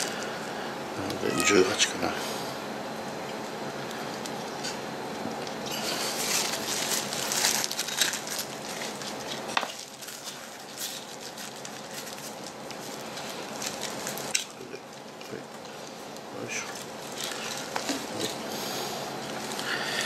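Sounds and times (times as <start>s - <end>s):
plastic gloves crinkling: 5.4s - 20.0s
plastic cups crackling: 5.5s - 18.4s.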